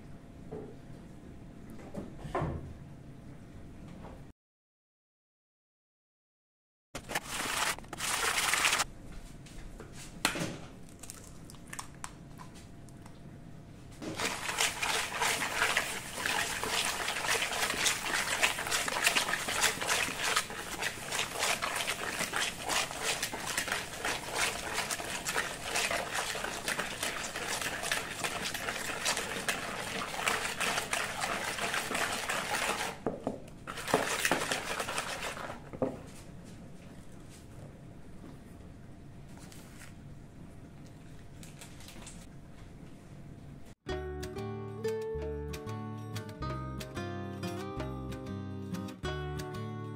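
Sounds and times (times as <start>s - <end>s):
whisk beating mixture in bowl: 7.1s - 8.8s, 14.0s - 35.8s.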